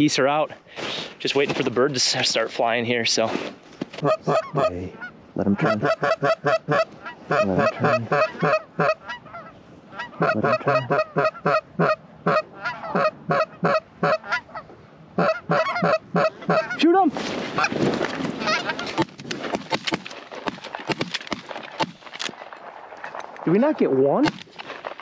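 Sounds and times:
goose honks and clucks: 0:04.0 - 0:17.0, 0:18.4 - 0:19.0.

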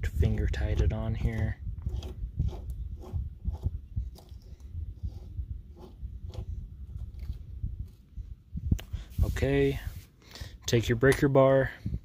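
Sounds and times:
low rumble: 0:00.0 - 0:10.0
nut threading clicks and scrapes: 0:00.1 - 0:08.0.

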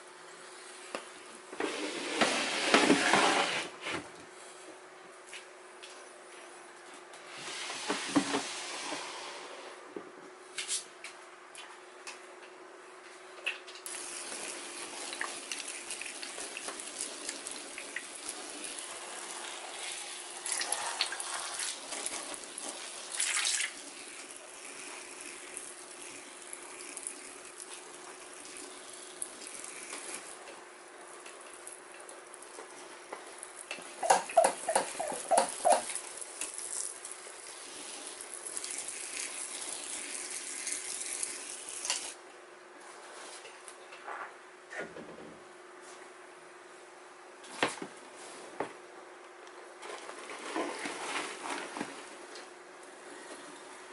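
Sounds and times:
plastic tub sliding out: 0:01.5 - 0:04.0, 0:07.4 - 0:09.8, 0:49.8 - 0:52.2.

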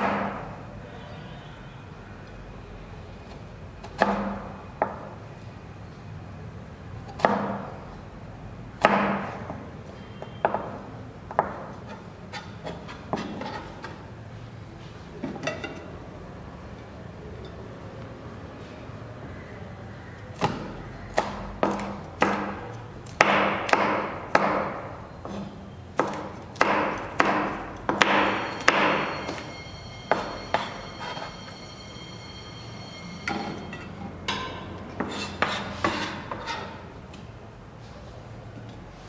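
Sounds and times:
knife chopping on plastic board: 0:20.4 - 0:29.0
high metallic ring: 0:28.2 - 0:35.4.

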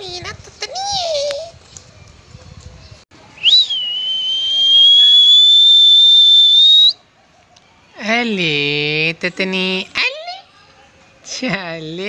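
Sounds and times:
loud high whistle: 0:03.4 - 0:07.0.

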